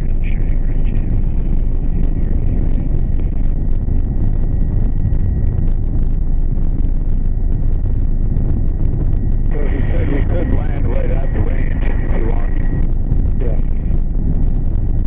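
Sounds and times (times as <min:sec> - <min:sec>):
helicopter rotor and engine rumble: 0:00.0 - 0:15.0
high-pitched whine: 0:00.0 - 0:15.0.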